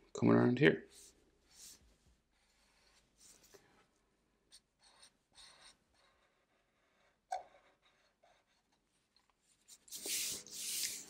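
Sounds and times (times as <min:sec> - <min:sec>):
marker pen scratching on paper: 0:04.5 - 0:06.4, 0:09.6 - 0:11.0.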